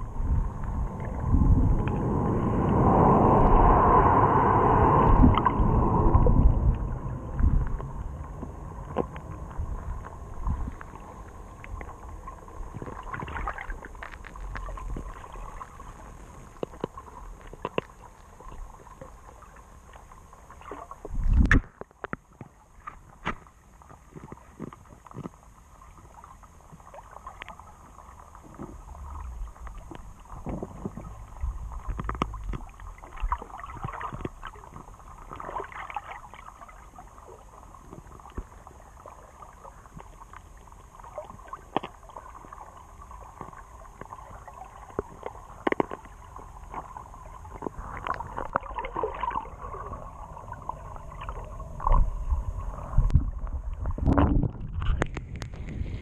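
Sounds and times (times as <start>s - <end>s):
muffled underwater rumble: 0.0s - 56.0s
underwater clicks and knocks: 5.2s - 11.0s, 16.5s - 18.7s, 21.0s - 25.4s, 29.6s - 35.6s, 41.7s - 42.0s, 44.9s - 49.4s, 53.0s - 56.0s.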